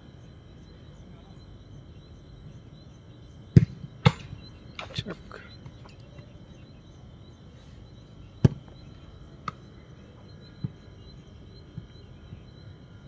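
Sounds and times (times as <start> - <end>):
high insect hum: 0.0 - 13.0
football being kicked: 3.5 - 4.3, 8.4 - 8.8.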